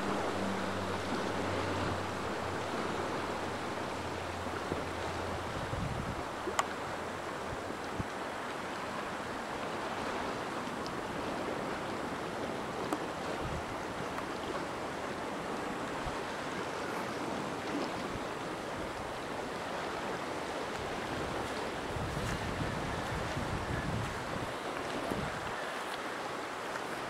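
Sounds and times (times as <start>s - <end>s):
rain falling: 0.0s - 9.1s.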